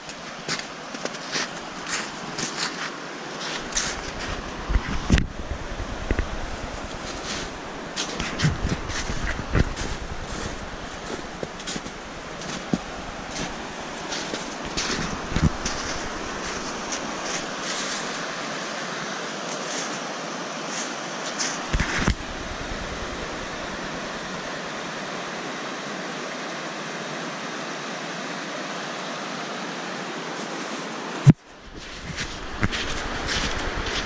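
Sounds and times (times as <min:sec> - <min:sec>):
footsteps crunching through snow: 0:00.0 - 0:18.7, 0:19.5 - 0:25.0, 0:31.6 - 0:34.0
river rapids over rocks: 0:00.0 - 0:34.0.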